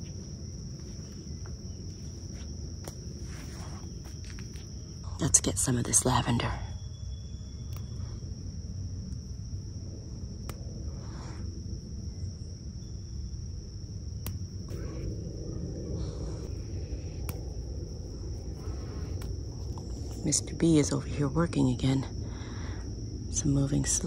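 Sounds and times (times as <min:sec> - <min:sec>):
stems rustling: 0:00.0 - 0:06.4
high insect trill: 0:00.0 - 0:24.0
low rumbling background: 0:00.0 - 0:24.0.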